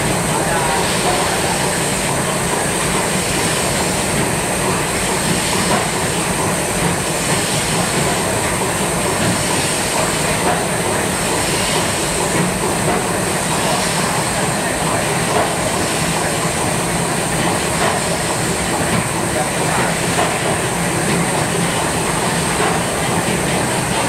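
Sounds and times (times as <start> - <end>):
steam engines clattering at idle: 0.0 - 24.0
steam hiss: 0.2 - 24.0.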